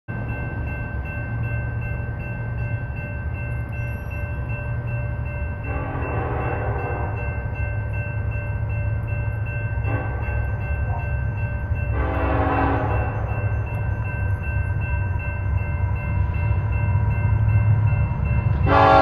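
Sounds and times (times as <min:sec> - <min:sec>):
locomotive air horn: 0:05.7 - 0:07.2, 0:09.8 - 0:11.0, 0:11.9 - 0:13.3, 0:18.6 - 0:19.0.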